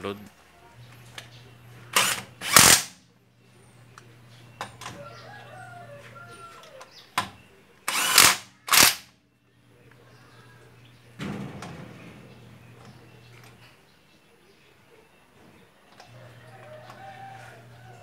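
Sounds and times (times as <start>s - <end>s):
impact wrench hammering bursts: 1.9s - 3.0s, 7.9s - 9.1s.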